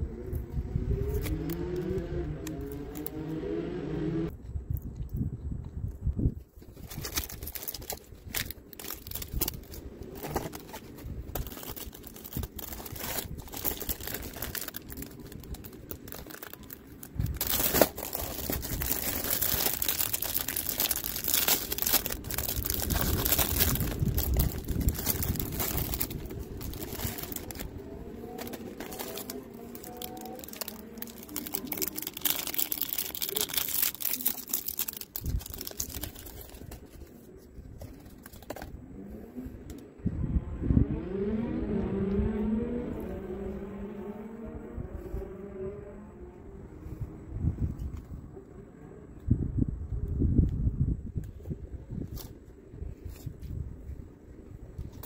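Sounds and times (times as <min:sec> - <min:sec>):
plastic packaging crinkling and tearing: 0:06.6 - 0:38.6.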